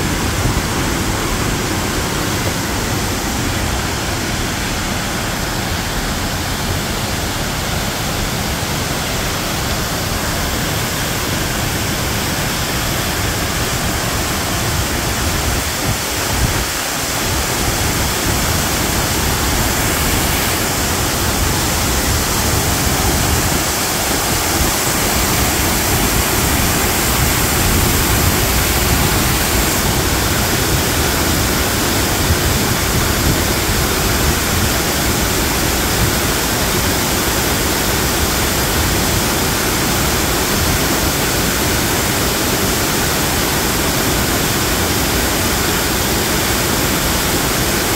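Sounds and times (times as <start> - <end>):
waterfall pouring into pool: 0.0 - 47.9.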